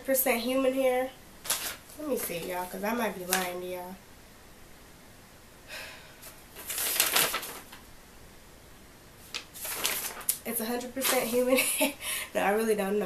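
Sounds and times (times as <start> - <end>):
paper rustling: 1.4 - 3.6, 6.2 - 7.9, 9.2 - 11.6.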